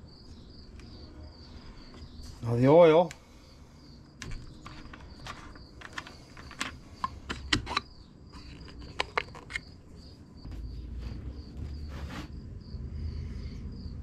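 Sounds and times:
pulsing insect chirp: 0:00.0 - 0:14.0
plastic bottle seal clicking and scraping: 0:04.2 - 0:09.8.

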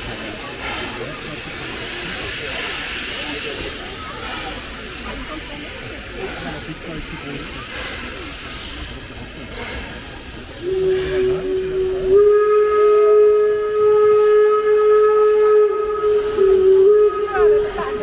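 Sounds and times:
steam hissing: 0:00.0 - 0:18.0
steam whistle blast: 0:10.6 - 0:18.0.

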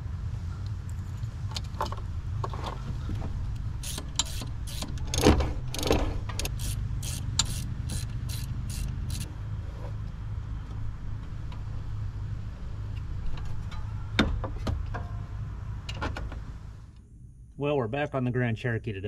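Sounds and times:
steady low hum: 0:00.0 - 0:19.0
hand ratchet clicking: 0:03.8 - 0:09.3.

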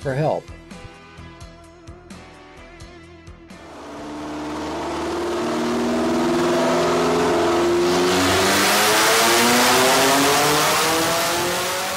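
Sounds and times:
car engine accelerating: 0:03.5 - 0:11.9.

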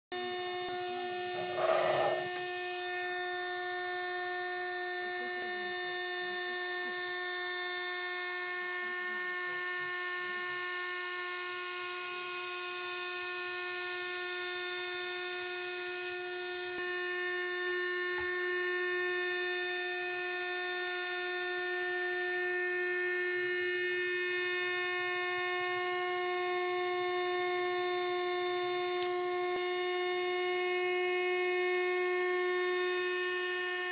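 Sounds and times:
toy helicopter motor whining: 0:00.4 - 0:03.4.

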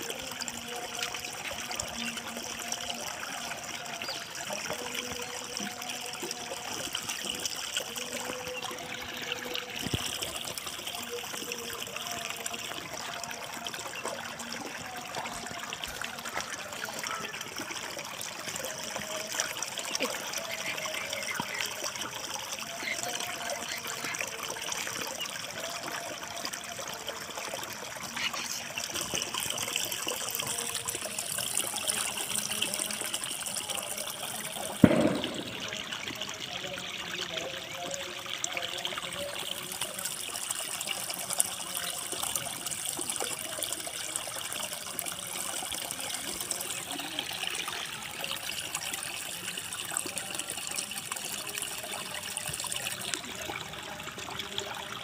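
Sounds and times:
water babbling in a channel: 0:00.0 - 0:55.0
sharp knock: 0:34.9 - 0:35.6.

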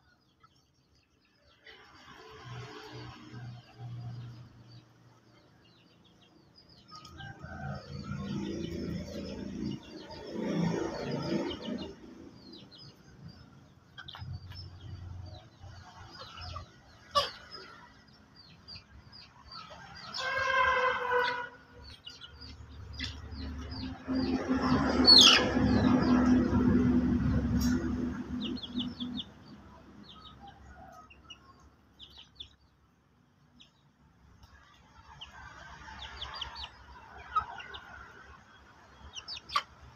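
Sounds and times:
chickens cheeping and clucking: 0:00.0 - 0:39.9
rooster crowing: 0:07.0 - 0:08.6, 0:19.7 - 0:21.6.

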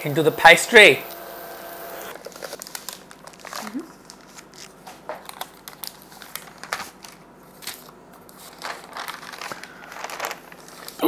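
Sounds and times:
parchment paper crinkling: 0:02.1 - 0:11.0.

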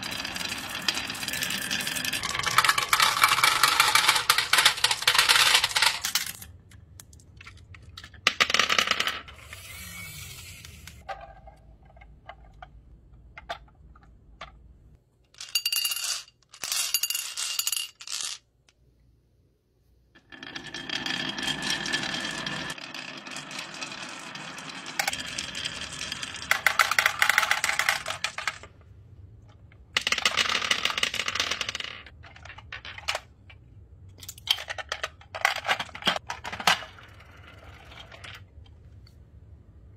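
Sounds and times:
marbles clattering down wooden track: 0:00.0 - 0:06.4, 0:20.2 - 0:28.7, 0:30.0 - 0:33.4.

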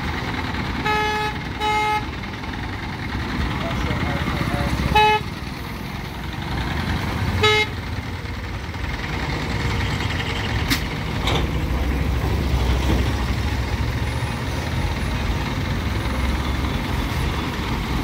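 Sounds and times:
crane diesel engine rumbling: 0:00.0 - 0:18.0
vehicle horn toot: 0:00.8 - 0:02.1, 0:04.9 - 0:05.3, 0:07.4 - 0:07.8.

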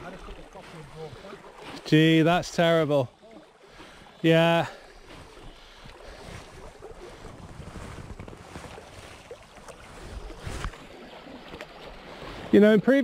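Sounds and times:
river current flowing: 0:00.0 - 0:13.0
wind buffeting microphone: 0:05.0 - 0:11.0.

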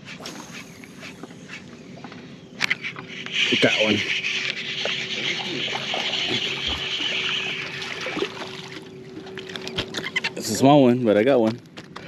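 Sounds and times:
water splashing and trickling: 0:04.6 - 0:10.2.

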